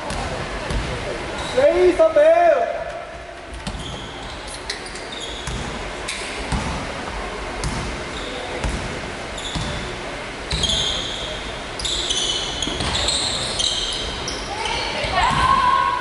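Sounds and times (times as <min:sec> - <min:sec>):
sneakers squeaking on court: 0:03.5 - 0:05.9, 0:07.6 - 0:15.4.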